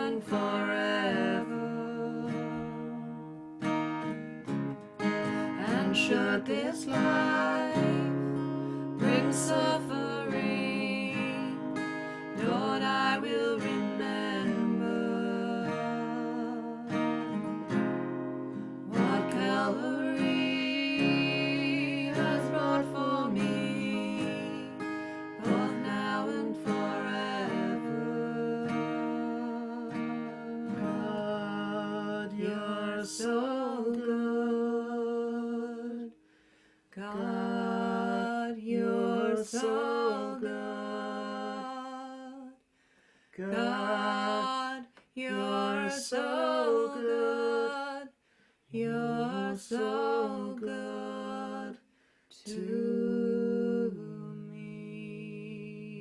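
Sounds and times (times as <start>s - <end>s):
person singing worship song: 0.0s - 3.4s, 5.0s - 17.1s, 18.8s - 36.2s, 36.9s - 42.6s, 43.3s - 56.0s
strummed acoustic guitar: 0.0s - 36.0s.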